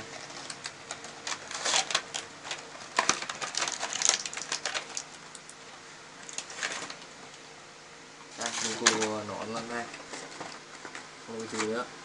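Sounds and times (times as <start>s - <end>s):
plastic packaging crackling: 0.0s - 5.5s, 6.2s - 7.1s.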